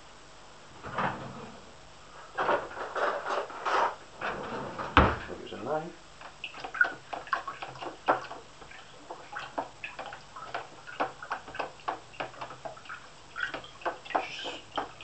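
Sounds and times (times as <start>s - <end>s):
stick tapping plastic bucket: 6.2s - 15.0s.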